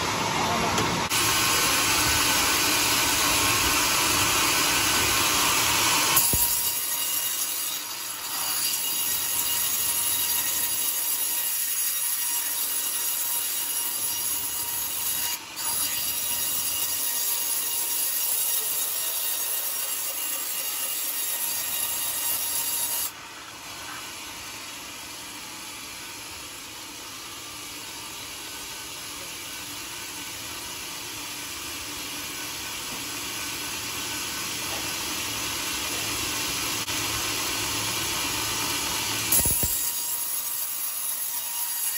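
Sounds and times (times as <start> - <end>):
band saw blade cutting wood: 1.1 - 23.2, 39.1 - 41.9.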